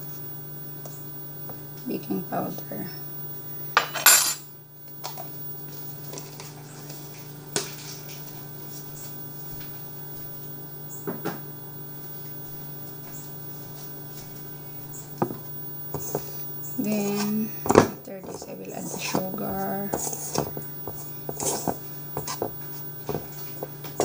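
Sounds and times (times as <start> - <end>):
steady low hum: 0.0 - 24.0
dishes clinking and knocking: 3.8 - 4.5, 17.6 - 18.0.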